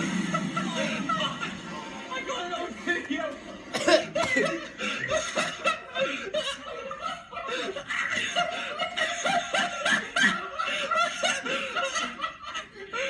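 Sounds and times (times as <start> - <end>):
boys stifling laughter: 0.3 - 13.0.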